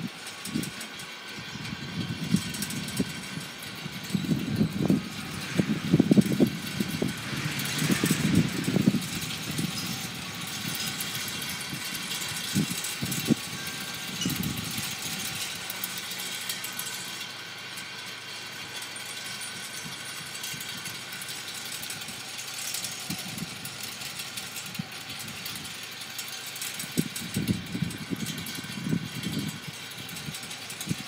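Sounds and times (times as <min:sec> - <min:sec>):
wind buffeting microphone: 0:00.0 - 0:15.7, 0:23.0 - 0:23.7, 0:26.8 - 0:31.0.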